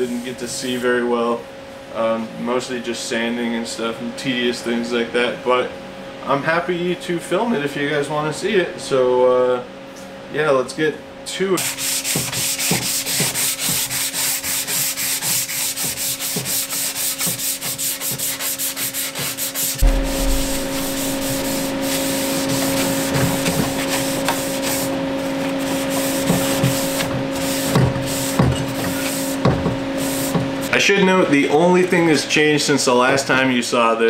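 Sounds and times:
sandpaper rubbing by hand: 11.6 - 19.8, 20.8 - 29.4, 30.0 - 30.5.

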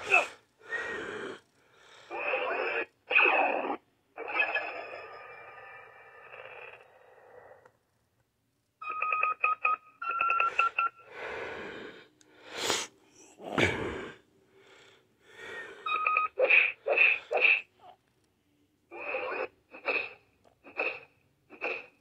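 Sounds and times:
toy electronic beeps: 4.2 - 5.9, 15.8 - 16.6.

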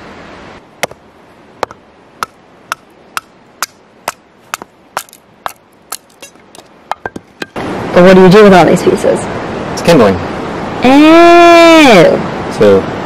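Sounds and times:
axe chopping wood: 0.8 - 1.0, 1.6 - 7.6.

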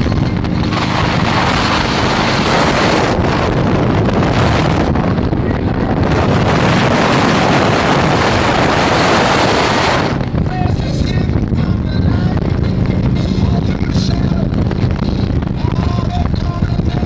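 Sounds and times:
motorcycle engine running: 0.0 - 17.0
wind rushing over microphone: 0.0 - 17.0.

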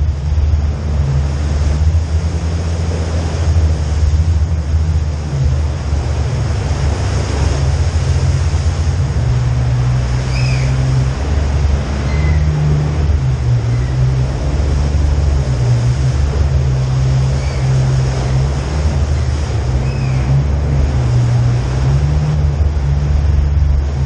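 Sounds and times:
vehicle engine running: 0.0 - 24.0
faint high squeaks: 12.0 - 12.6.

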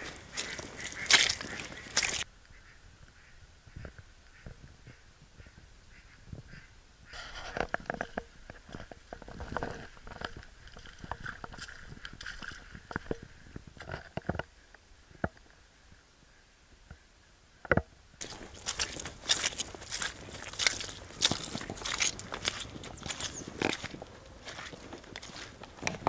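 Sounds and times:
footsteps squelching in wet mud: 0.0 - 2.3, 7.2 - 13.4, 18.2 - 26.0.

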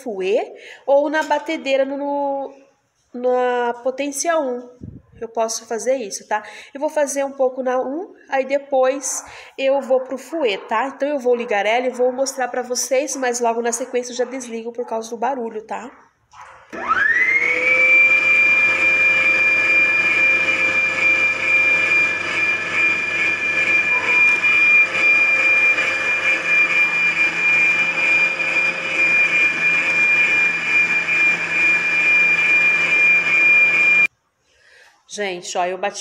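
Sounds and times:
stand mixer motor whining: 16.7 - 34.1.

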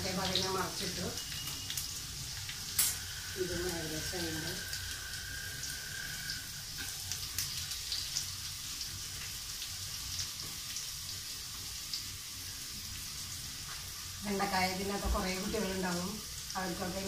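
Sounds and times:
oil crackles and pops: 0.0 - 3.8, 4.5 - 14.1
okra sizzling in hot oil: 0.0 - 17.0.

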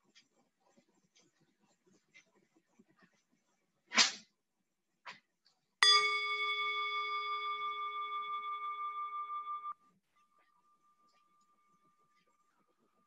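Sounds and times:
singing bowl ringing: 5.8 - 12.1.

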